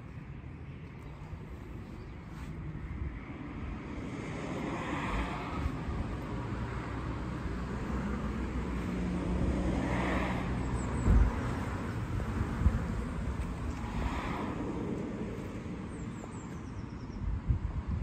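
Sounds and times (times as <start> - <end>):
low rumble of motor vehicles: 0.0 - 18.0
low thump: 11.0 - 11.4.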